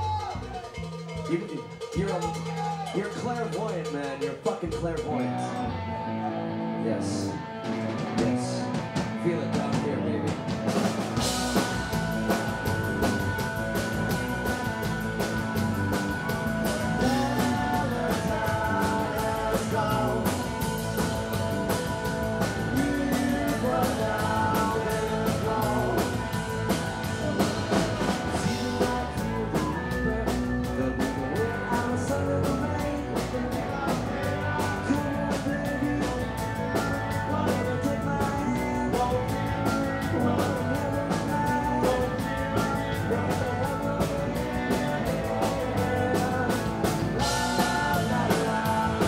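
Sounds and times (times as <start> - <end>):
drum kit beat: 0.0 - 5.5, 7.7 - 49.0
rock band playing live: 0.0 - 49.0
person singing: 13.8 - 49.0.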